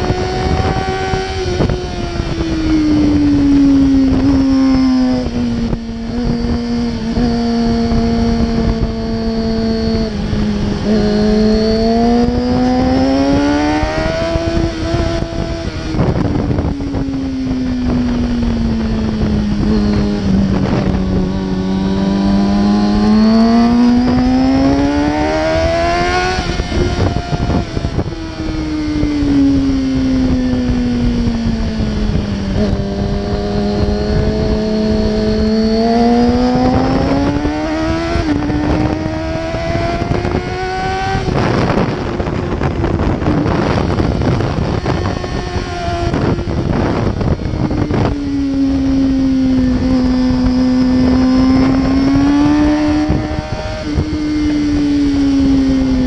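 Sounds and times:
motorcycle engine running: 0:00.0 - 0:56.0
wind buffeting microphone: 0:00.0 - 0:56.0.

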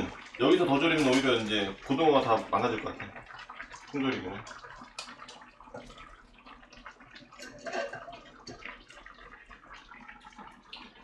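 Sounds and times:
liquid bubbling in a pot: 0:00.0 - 0:11.0
pot clatter: 0:00.5 - 0:02.0, 0:07.2 - 0:09.1.

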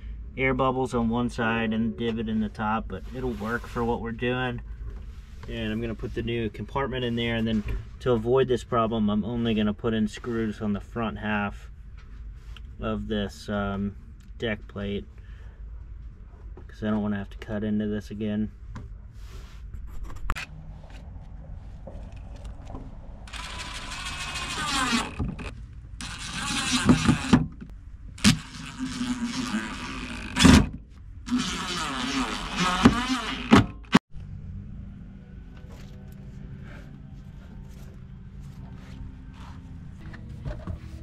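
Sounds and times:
impact driver driving screws: 0:23.3 - 0:27.5, 0:31.3 - 0:34.0
low machine hum: 0:34.1 - 0:41.0
plastic frame scuffs and rustles: 0:37.2 - 0:41.0.

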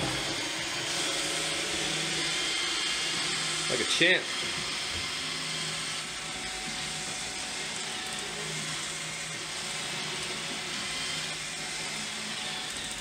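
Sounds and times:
robot vacuum motor whirring: 0:00.0 - 0:13.0.

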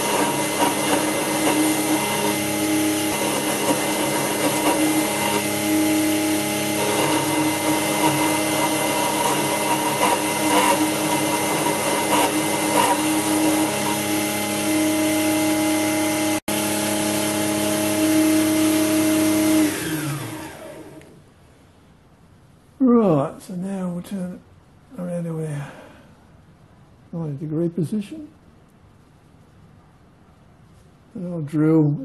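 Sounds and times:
small electric motor running: 0:00.0 - 0:16.4.

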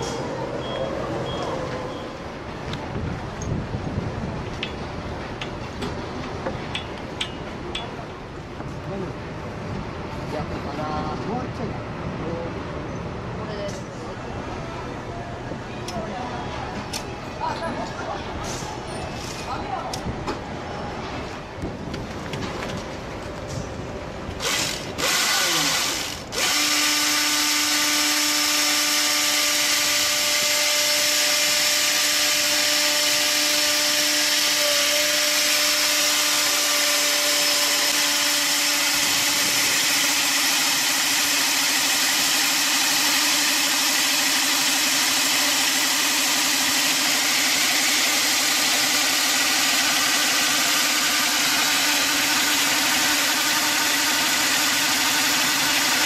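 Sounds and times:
electric chainsaw cutting log: 0:24.4 - 0:56.0.

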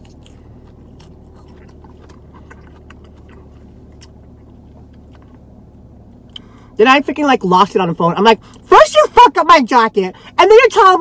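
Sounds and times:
chewing salad: 0:00.0 - 0:06.5
car cabin hum: 0:00.0 - 0:11.0.

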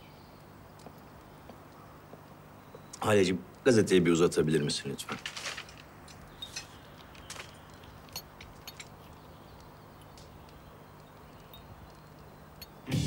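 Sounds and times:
newspaper rustling: 0:05.0 - 0:07.7
light clicks: 0:06.1 - 0:12.8.

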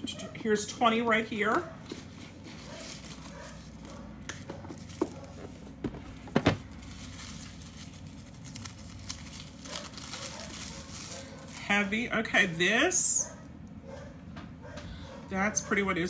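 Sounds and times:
low room hum: 0:00.0 - 0:16.0
package being handled and opened: 0:01.5 - 0:11.9.

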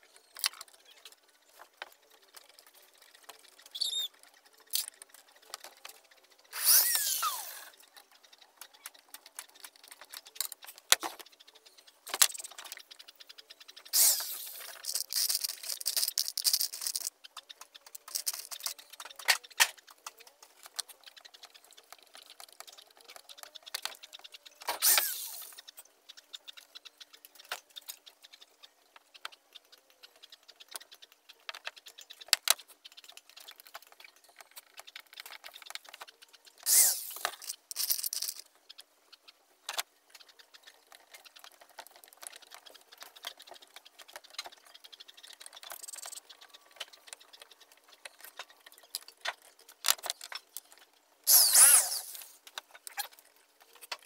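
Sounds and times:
cordless drill driving screws: 0:06.6 - 0:07.7, 0:24.8 - 0:25.4, 0:36.7 - 0:37.2, 0:51.3 - 0:52.3.

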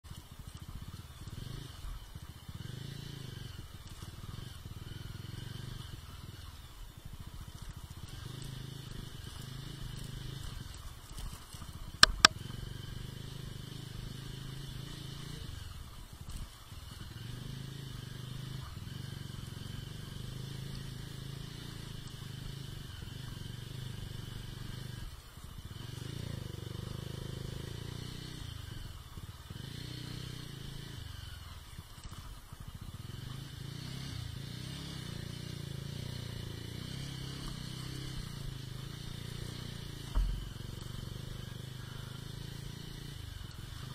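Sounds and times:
motorcycle engine running: 0:00.0 - 0:43.9
sharp knocks: 0:12.0 - 0:12.4, 0:40.1 - 0:40.5.

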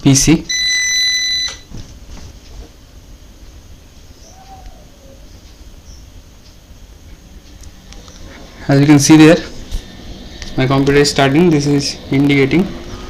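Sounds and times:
low steady hum: 0:00.0 - 0:13.0
high-pitched computer beep: 0:00.5 - 0:01.7.

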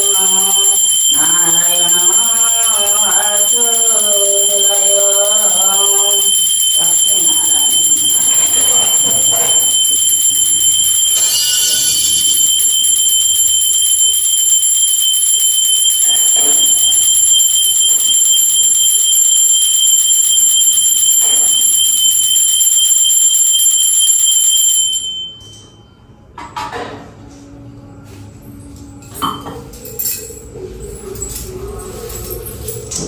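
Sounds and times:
bell ringing rapidly: 0:00.0 - 0:25.6.

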